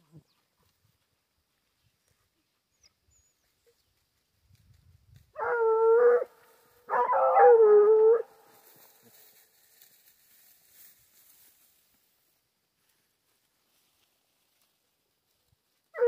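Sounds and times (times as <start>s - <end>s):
hound baying: 5.4s - 8.6s.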